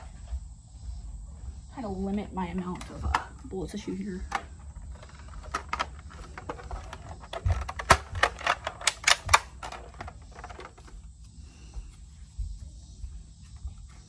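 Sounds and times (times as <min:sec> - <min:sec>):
plastic toy blaster clicks and knocks: 0:04.3 - 0:10.8.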